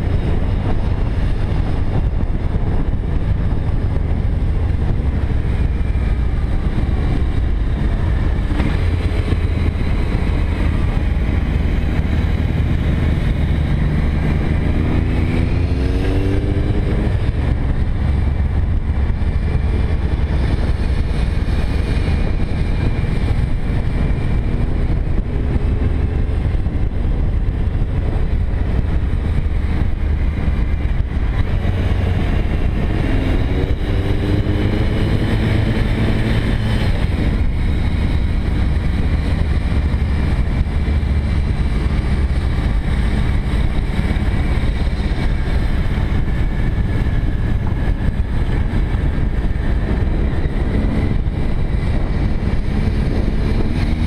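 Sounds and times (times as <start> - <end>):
motorcycle engine running: 0.0 - 54.0
wind rushing over microphone: 0.0 - 54.0.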